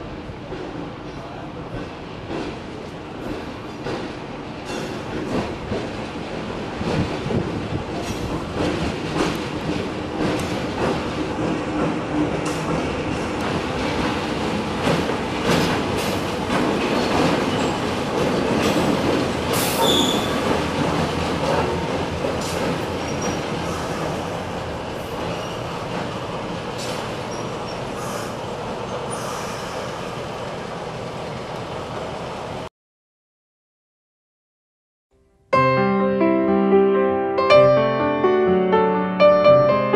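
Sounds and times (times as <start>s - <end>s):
wheels clicking over rail joints: 2.3s - 29.8s
diesel locomotive rumble: 2.7s - 32.7s
wheel squeal: 19.6s - 20.4s, 22.4s - 24.2s, 25.2s - 25.8s, 26.8s - 28.3s.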